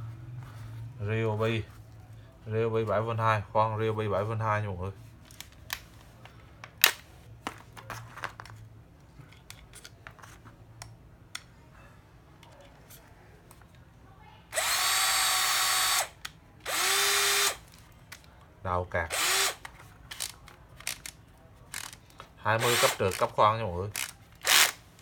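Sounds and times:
drill motor whining: 14.5s - 16.1s, 16.7s - 17.6s, 19.1s - 19.6s.

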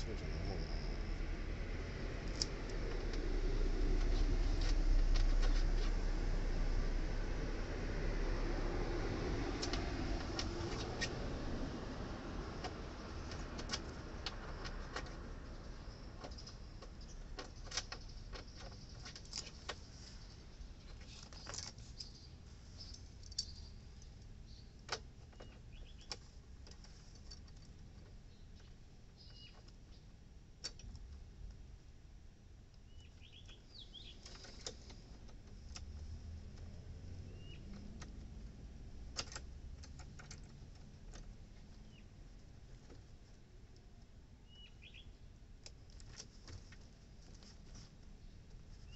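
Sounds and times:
bird chirps: 20.2s - 26.2s, 28.3s - 30.1s, 32.8s - 34.3s, 37.3s - 37.8s, 41.8s - 42.1s, 44.4s - 45.3s
clicks and rustles of tool handling: 20.8s - 22.2s.

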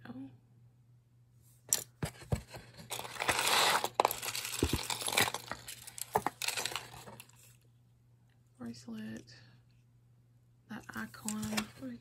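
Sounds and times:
jewelry clinking and rattling: 2.9s - 7.3s.

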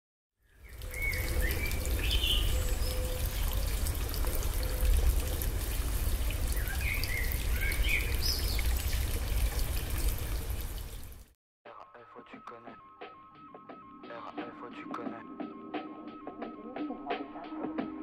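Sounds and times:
birds chirping: 0.5s - 10.1s
running water: 0.5s - 11.3s.

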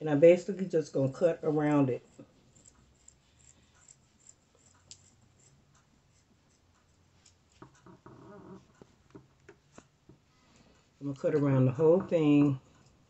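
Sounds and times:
scissors cutting fabric: 2.0s - 8.0s.

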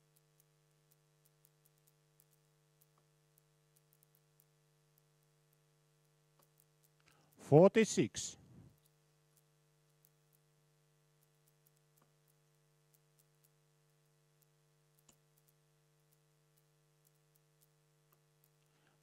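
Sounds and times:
faint electrical hum: 0.0s - 19.0s
faint clicks: 0.1s - 7.4s, 11.2s - 19.0s.

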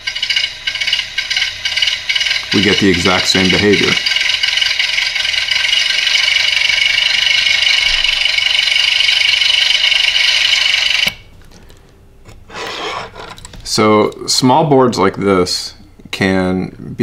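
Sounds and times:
harsh hissy buzz from speaker: 0.0s - 4.5s.

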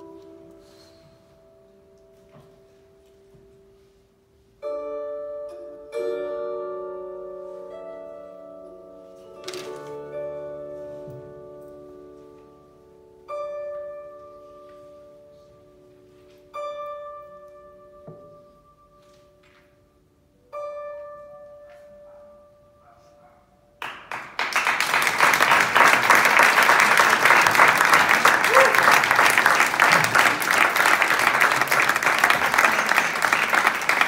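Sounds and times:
audience applause: 23.8s - 34.0s.

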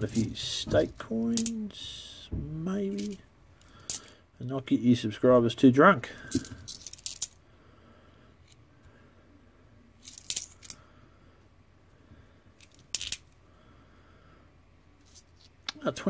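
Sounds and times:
coins clicking and clinking: 1.4s - 1.6s, 6.3s - 7.4s, 10.0s - 10.8s, 12.6s - 13.3s.

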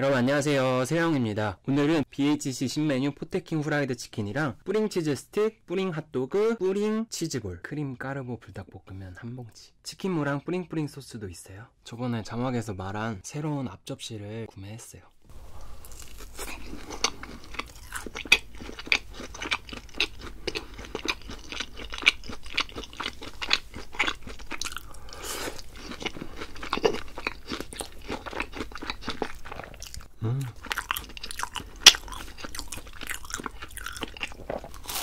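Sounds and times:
chewing crispy fried food: 15.5s - 35.0s.

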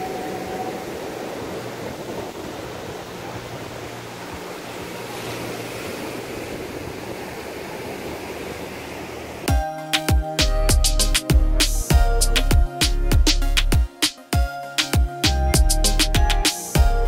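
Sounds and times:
ocean surf on sandy beach: 0.0s - 9.6s
wind: 0.0s - 17.0s.

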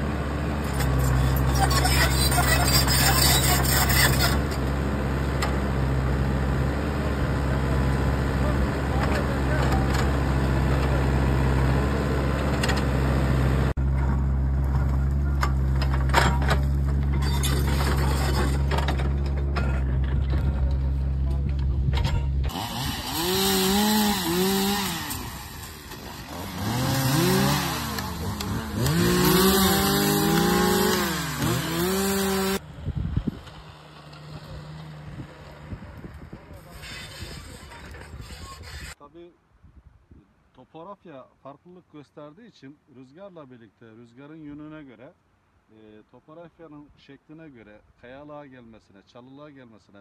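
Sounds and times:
engine running at high revs: 0.0s - 15.2s, 22.4s - 36.3s
excavator diesel engine running: 0.0s - 24.4s
bucket scraping and stones clattering: 13.9s - 20.9s.

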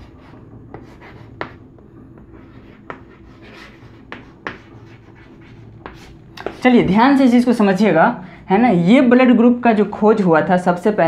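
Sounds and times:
chalk tapping on blackboard: 0.0s - 6.6s
chalk scratching: 0.0s - 6.7s.

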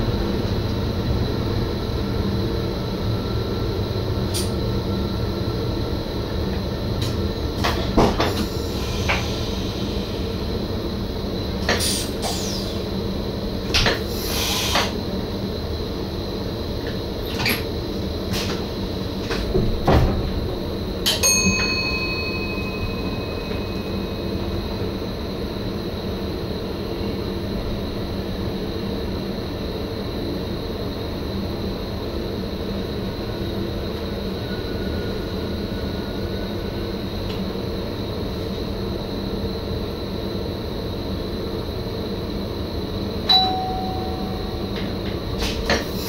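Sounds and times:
electric train running noise: 0.0s - 46.0s
bell-like ding: 21.2s - 24.6s, 43.3s - 44.6s.

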